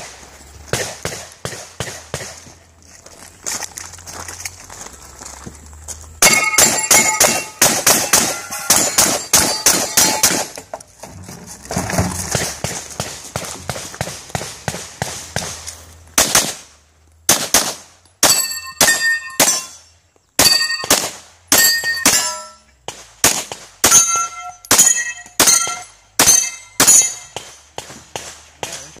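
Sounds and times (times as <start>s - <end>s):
pistol shots: 0.7s - 2.4s, 6.2s - 10.6s, 16.2s - 16.7s, 17.3s - 19.7s, 20.4s - 28.9s
gunshots: 0.7s - 2.5s, 6.2s - 10.6s, 16.2s - 16.7s, 17.3s - 19.7s, 20.4s - 29.0s
steel plate targets ringing: 6.2s - 10.6s, 18.2s - 22.7s, 23.8s - 27.4s.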